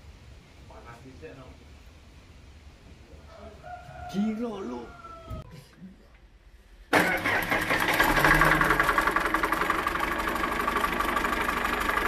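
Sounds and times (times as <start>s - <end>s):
sawmill engine running: 6.9s - 12.0s.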